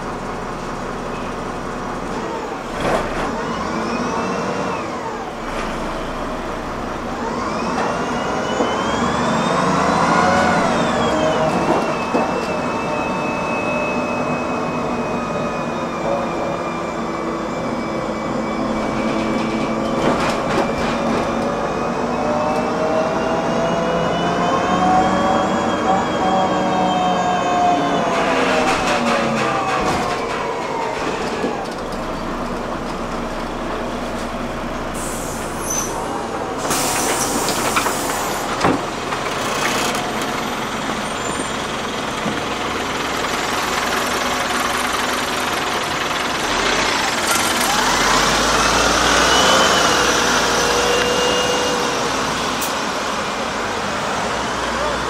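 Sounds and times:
vehicle drive whine: 0:00.0 - 0:55.0
vehicle running rumble: 0:28.2 - 0:55.0.

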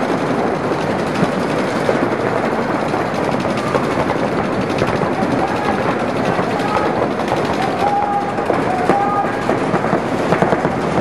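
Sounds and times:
paintball markers firing rapidly: 0:00.8 - 0:11.0.

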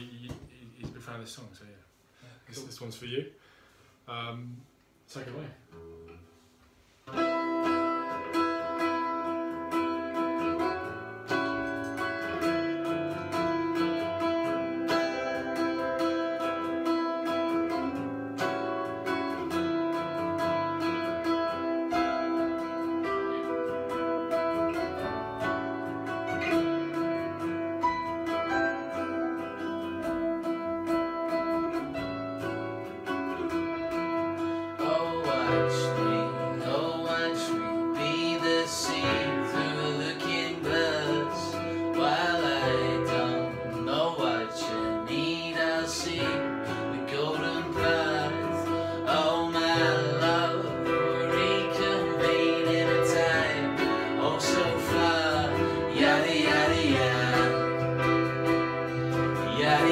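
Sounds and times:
acoustic guitar strumming: 0:05.7 - 0:59.9
keyboard playing: 0:07.1 - 0:59.9
man singing: 0:34.7 - 0:59.9.

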